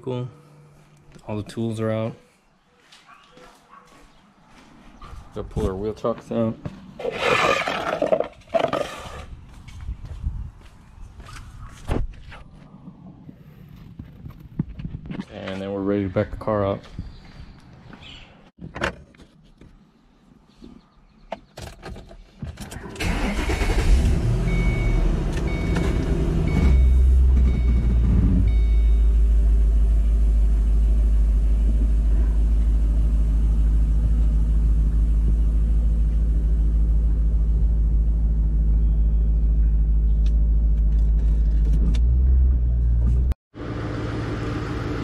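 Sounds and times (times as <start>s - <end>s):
car engine starting and idling: 22.6s - 45.0s.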